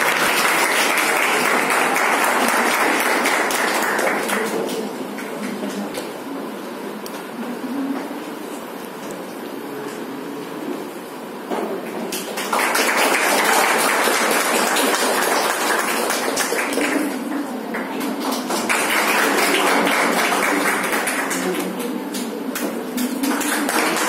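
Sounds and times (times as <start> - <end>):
group of people clapping: 0.0 - 6.2, 11.8 - 24.0.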